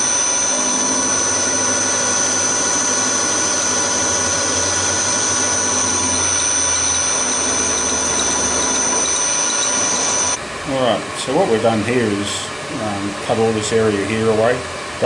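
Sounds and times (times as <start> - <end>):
metal cutting noise: 0.0 - 10.4
milling machine whine: 0.0 - 15.0.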